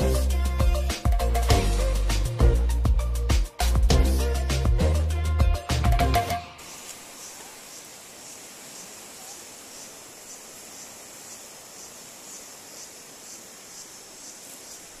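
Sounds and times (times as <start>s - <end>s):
insects buzzing: 6.4s - 15.0s
quiet hiss: 6.5s - 15.0s.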